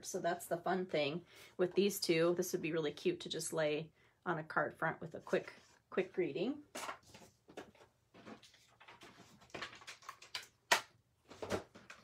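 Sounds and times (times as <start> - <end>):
paper rustling: 6.8 - 10.4.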